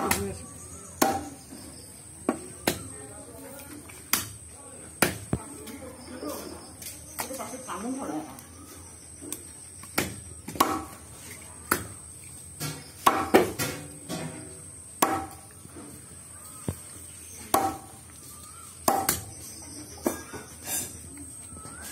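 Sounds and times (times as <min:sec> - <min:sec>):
cleaver chopping on wooden block: 0:01.0 - 0:01.4, 0:10.0 - 0:11.0, 0:11.7 - 0:11.9, 0:12.6 - 0:13.8, 0:15.0 - 0:15.5, 0:17.5 - 0:18.0, 0:18.8 - 0:19.3.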